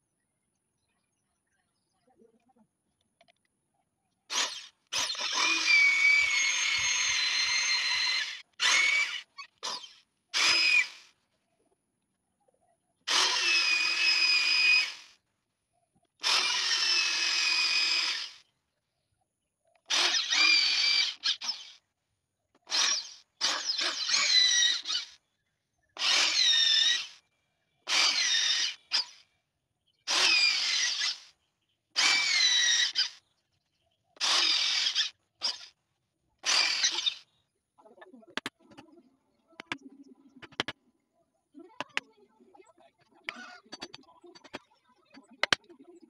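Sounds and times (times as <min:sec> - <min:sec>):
electric drill boring into wood: 0:04.3 - 0:11.1, 0:13.1 - 0:15.2, 0:16.2 - 0:18.4, 0:19.9 - 0:21.8, 0:22.6 - 0:25.2, 0:26.0 - 0:27.2, 0:27.9 - 0:29.2, 0:30.1 - 0:31.3, 0:32.0 - 0:33.2, 0:34.2 - 0:35.7, 0:36.4 - 0:37.2.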